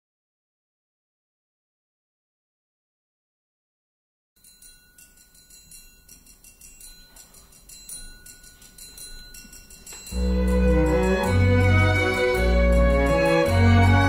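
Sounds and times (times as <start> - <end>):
tinkling bell-like notes: 4.4 - 14.0.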